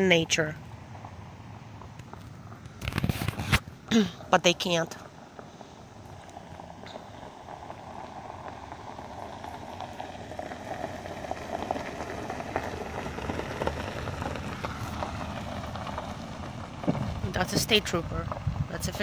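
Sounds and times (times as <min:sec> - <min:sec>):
tyres crunching on gravel: 0:00.1 - 0:19.0.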